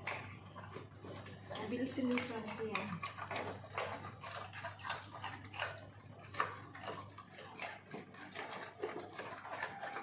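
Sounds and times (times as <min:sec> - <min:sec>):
dog eating with light clicks: 0:00.0 - 0:10.0.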